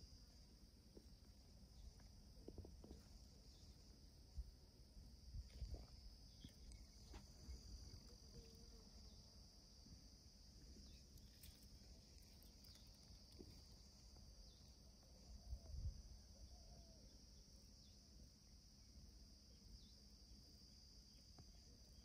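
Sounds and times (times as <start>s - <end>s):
insect drone: 0.0s - 22.0s.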